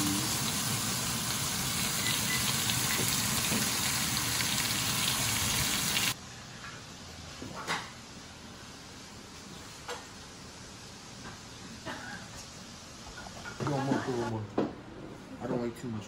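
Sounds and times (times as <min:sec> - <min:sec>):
steaks sizzling in a skillet: 0:00.0 - 0:06.2.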